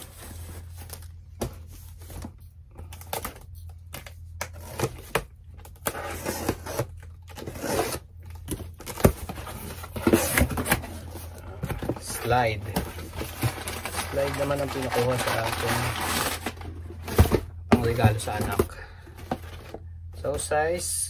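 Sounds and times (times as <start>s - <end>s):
cardboard scraping and tearing: 5.8s - 8.1s, 8.8s - 18.5s.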